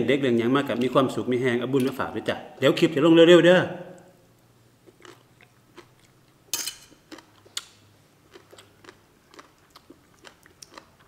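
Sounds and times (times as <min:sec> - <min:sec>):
person chewing food: 0:04.8 - 0:11.0.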